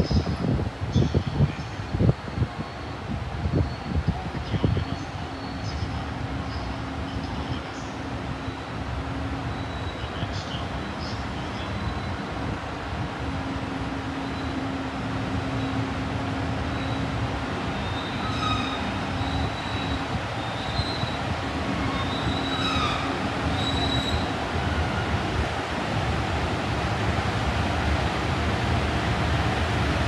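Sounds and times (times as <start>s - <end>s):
train rolling on rails: 0.0s - 30.0s
train wheels squealing: 4.8s - 5.8s, 9.5s - 10.2s, 16.7s - 17.1s, 17.8s - 21.2s, 21.8s - 24.3s.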